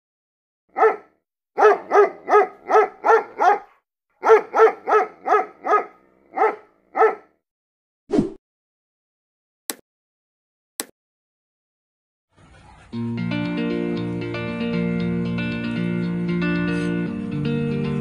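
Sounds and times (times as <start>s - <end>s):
dog barking: 0.7s - 7.3s.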